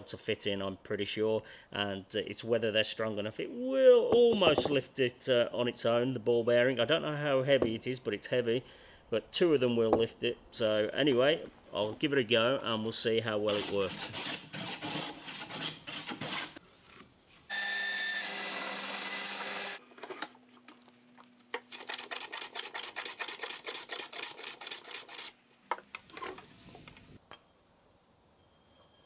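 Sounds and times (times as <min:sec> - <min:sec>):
hand plane shaving wood: 0:13.5 - 0:16.6, 0:21.7 - 0:25.4
rasping strokes on wood: 0:13.5 - 0:16.6, 0:21.8 - 0:25.4.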